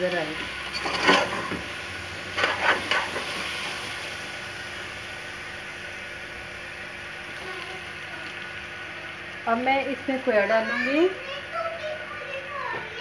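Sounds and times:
carrots sizzling in a pot: 0.0s - 13.0s
metal spoon scraping a pot: 0.6s - 1.6s.

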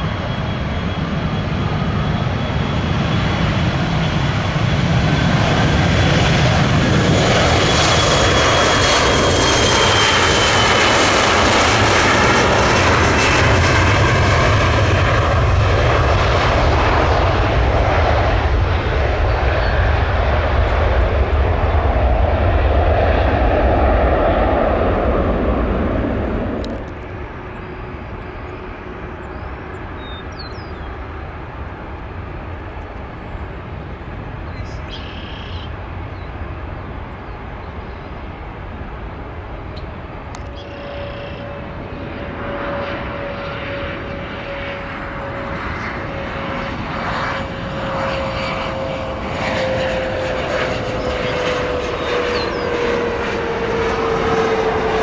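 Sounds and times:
jet engine roar with fan whine: 0.0s - 55.0s
bird chirps: 29.2s - 31.0s, 34.5s - 36.4s.

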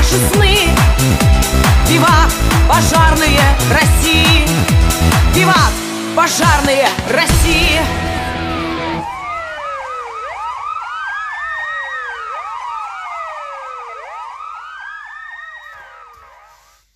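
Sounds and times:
sirens wailing: 0.0s - 16.8s
siren fast warble: 8.0s - 16.9s.

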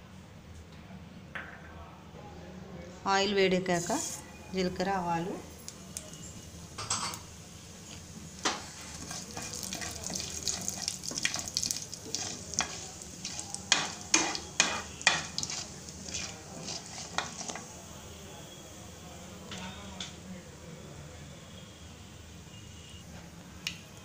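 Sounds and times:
seeds sizzling in hot oil: 7.5s - 18.7s
wooden spatula stirring: 8.5s - 17.8s.

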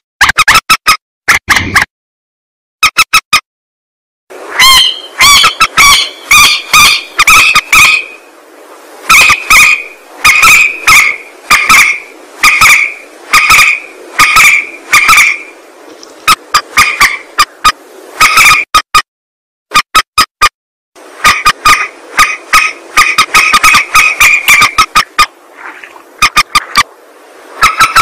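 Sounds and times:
rail bird call notes: 4.4s - 19.0s, 21.0s - 25.4s, 26.2s - 28.0s.

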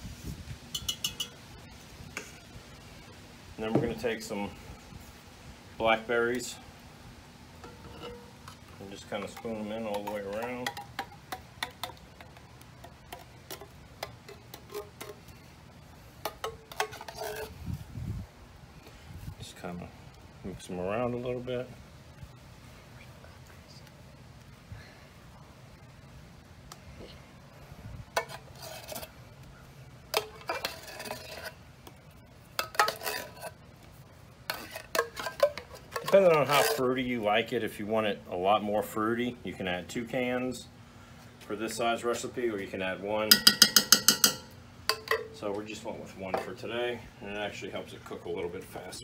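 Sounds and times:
spoon scraping inside tin can: 16.2s - 17.6s, 28.2s - 29.1s, 30.1s - 31.6s, 32.6s - 33.6s, 34.5s - 37.0s.

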